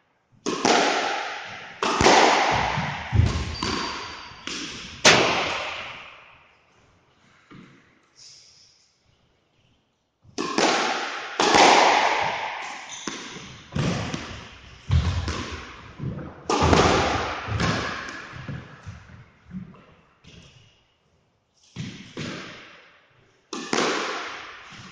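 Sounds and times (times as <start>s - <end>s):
rackets striking squash ball: 0.4s - 6.5s, 10.3s - 20.6s, 21.8s - 22.9s, 23.5s - 24.9s
ball smacking off court walls: 0.5s - 6.1s.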